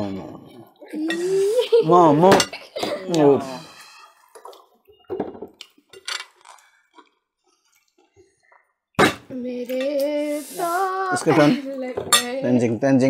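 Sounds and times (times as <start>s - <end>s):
clinks of plates and cutlery: 2.2s - 3.0s, 5.0s - 6.4s, 12.0s - 12.4s.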